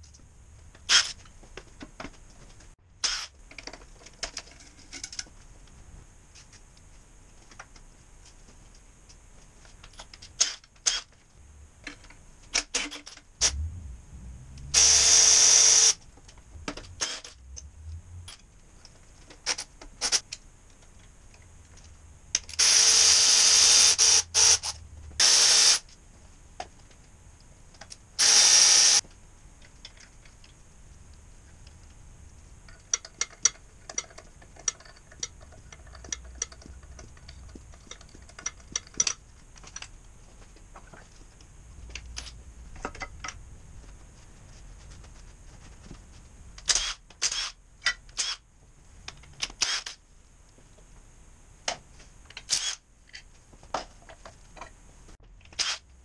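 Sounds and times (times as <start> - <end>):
tools and metal parts clinking: 3.5 - 5.3, 32.7 - 40.0.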